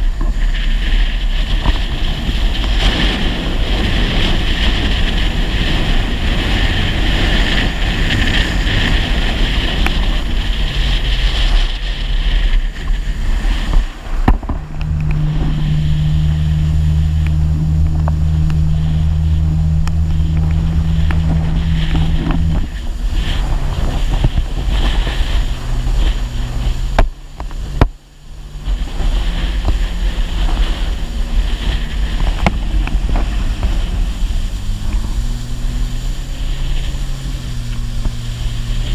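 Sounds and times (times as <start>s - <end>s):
water rushing past hull: 0.0s - 38.9s
watercraft engine running: 0.0s - 38.9s
wind buffeting microphone: 0.0s - 38.9s.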